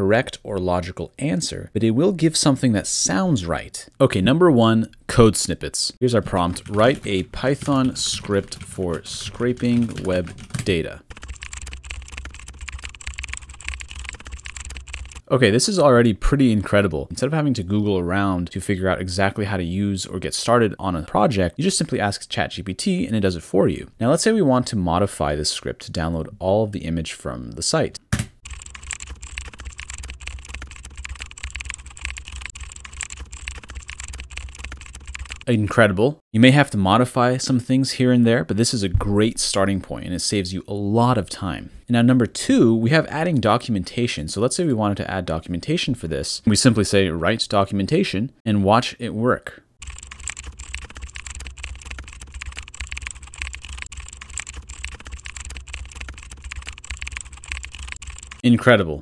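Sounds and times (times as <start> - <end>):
fast keyboard typing: 6.1 - 15.3, 28.2 - 35.5, 49.8 - 58.4.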